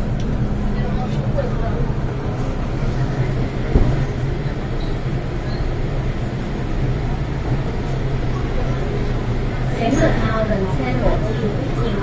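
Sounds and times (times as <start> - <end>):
metro train rumble and hum: 0.0 - 12.0
thump: 3.7 - 4.1.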